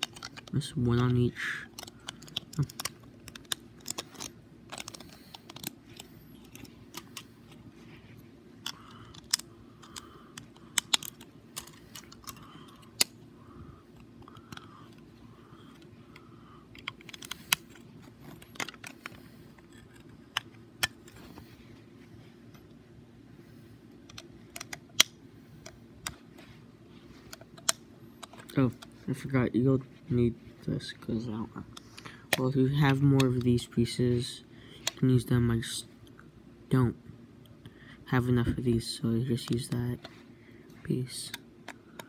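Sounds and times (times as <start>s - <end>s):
plastic bricks clicking together: 1.8s - 7.2s, 8.6s - 13.1s.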